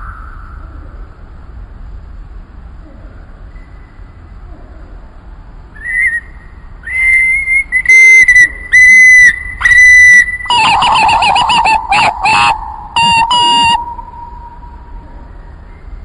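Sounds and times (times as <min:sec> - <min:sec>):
lower wavering whistle: 0:05.8 - 0:16.0
whistled notes: 0:06.9 - 0:16.0.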